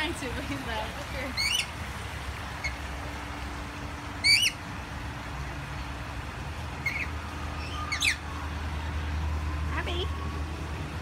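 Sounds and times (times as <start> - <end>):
parrots screeching: 1.4 - 1.8, 4.2 - 4.6, 6.8 - 8.3.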